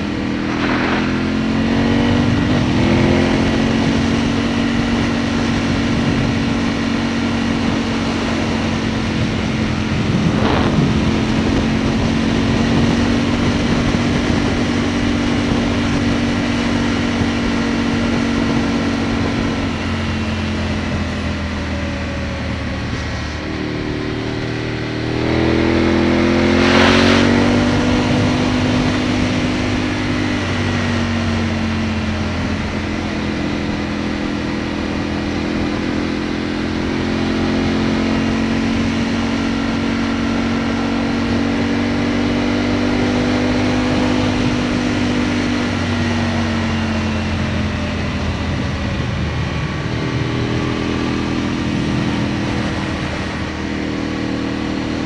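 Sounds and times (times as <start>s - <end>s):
loud rush of noise: 0.0s - 5.0s, 8.9s - 14.4s, 26.3s - 31.2s
motorcycle engine: 0.0s - 55.0s
wind and road noise: 0.0s - 55.0s.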